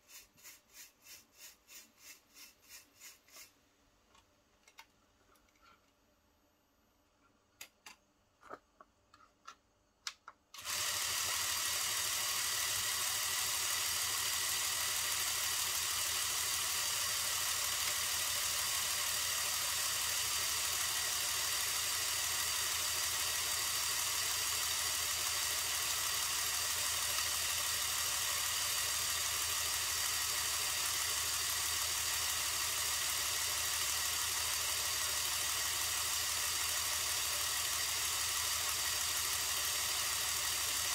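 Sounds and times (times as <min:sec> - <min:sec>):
air compressor running: 0:10.6 - 0:40.9.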